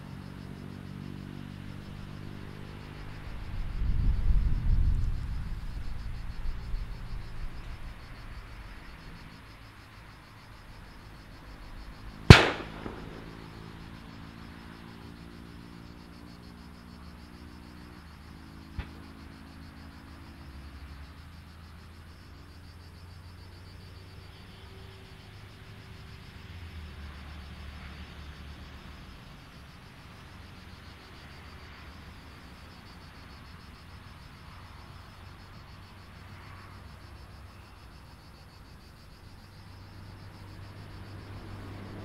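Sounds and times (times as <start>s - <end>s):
distant jet engines humming: 0.0s - 21.5s
insects chirping: 0.0s - 42.0s
loud sharp bang: 12.3s - 13.8s.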